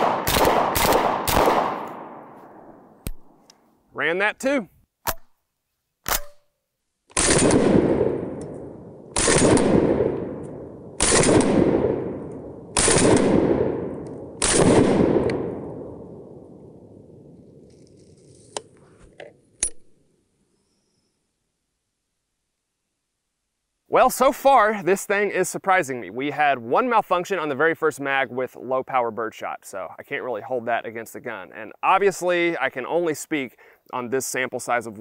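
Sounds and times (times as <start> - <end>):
shotgun shots echoing: 0.0 - 3.4, 7.2 - 16.6.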